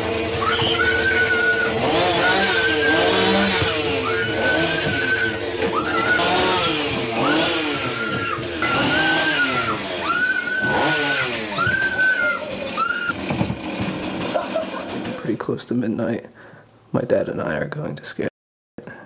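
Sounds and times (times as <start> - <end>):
chainsaw engine revving: 0.0 - 15.4.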